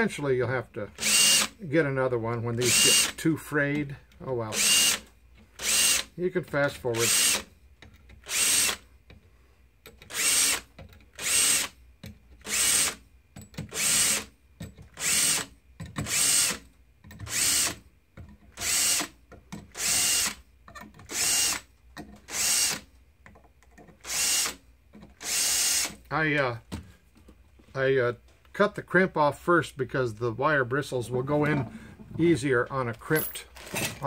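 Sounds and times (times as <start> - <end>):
cordless drill whirring: 0.9 - 1.6, 4.5 - 6.1, 7.0 - 7.5, 8.2 - 8.8, 10.1 - 11.8, 12.4 - 13.0, 13.7 - 14.3, 15.0 - 16.6, 17.3 - 17.8, 18.6 - 19.1, 19.7 - 20.4, 22.3 - 22.8, 24.0 - 24.6, 25.2 - 26.0.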